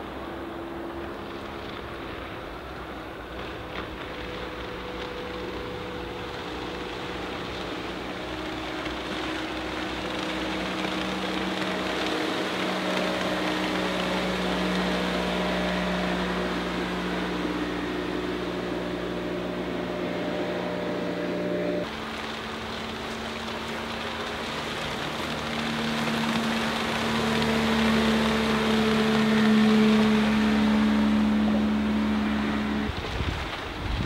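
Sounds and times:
outboard boat engine drone: 0.0 - 34.0
water rushing: 0.0 - 34.0.

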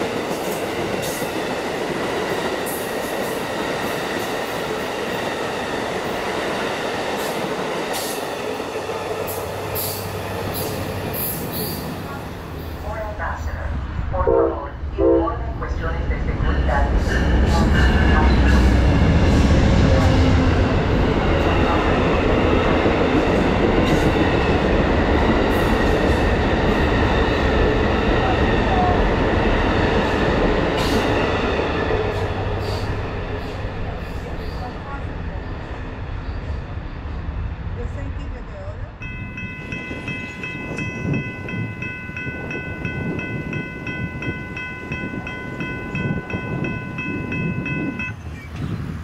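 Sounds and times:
train wheels on rails: 0.0 - 13.1, 16.1 - 49.0
railroad warning bell ringing: 6.2 - 13.0, 39.0 - 48.6.

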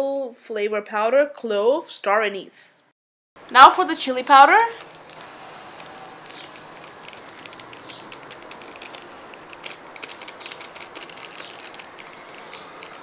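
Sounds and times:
foil sachet crinkling: 4.2 - 13.0.

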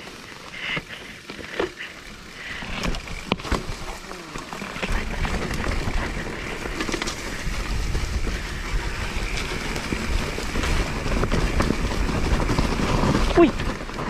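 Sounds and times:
bike clicking and rattling: 0.0 - 14.0
bike tyres on dirt and leaves: 0.0 - 14.0
wind buffeting microphone: 4.8 - 14.0.

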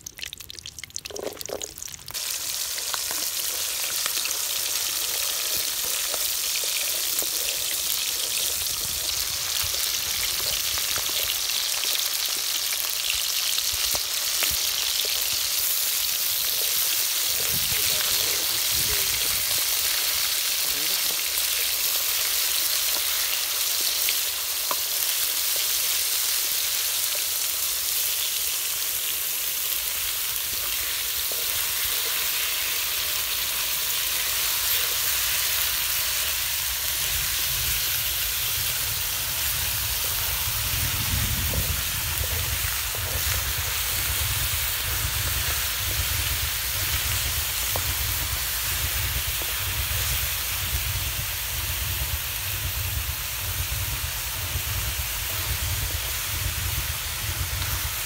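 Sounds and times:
food sizzling in hot oil: 0.0 - 58.0
wooden stick stirring in wok: 2.8 - 11.2, 14.2 - 19.3, 30.5 - 33.4, 39.4 - 50.2.

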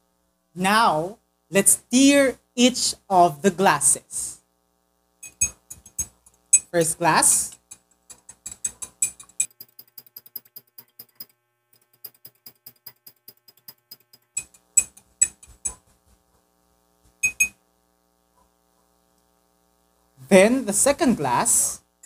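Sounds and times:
metal spoon clinking against glass: 5.2 - 6.7, 7.7 - 9.6.

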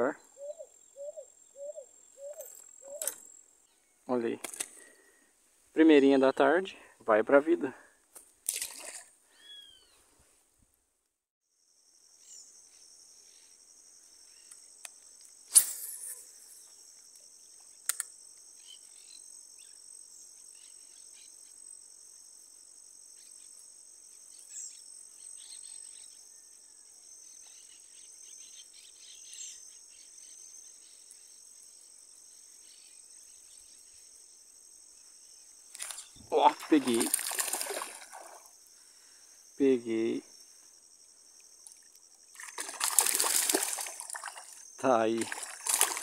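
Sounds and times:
faint bird chirps: 0.0 - 5.3, 9.3 - 10.1, 12.1 - 14.8, 24.1 - 45.9
high-pitched insect chorus: 11.5 - 46.0
sharp click: 17.9 - 18.1.

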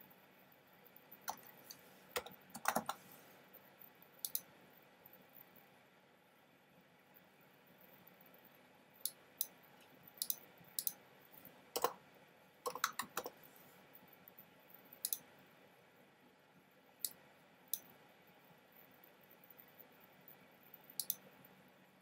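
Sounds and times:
sharp clicks: 2.2 - 3.0, 4.2 - 4.5, 10.2 - 11.0, 11.8 - 12.0, 12.7 - 13.3, 15.0 - 15.2, 21.0 - 21.3.

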